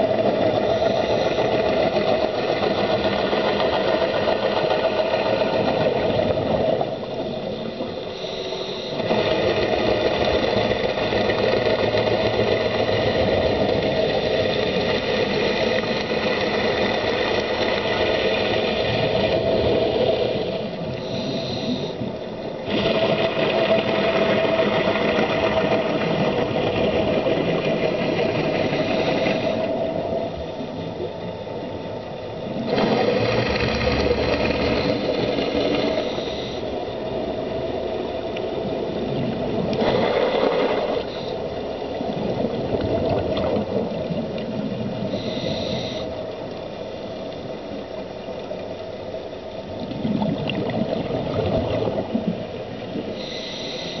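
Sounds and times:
bubbles gushing underwater: 42.0s - 45.2s, 49.8s - 53.0s.

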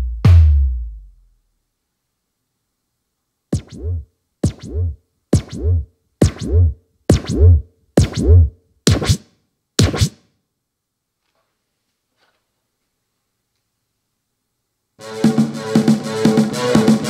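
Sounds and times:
electronic drum swooping hits: 3.6s - 9.2s, 9.8s - 10.2s.

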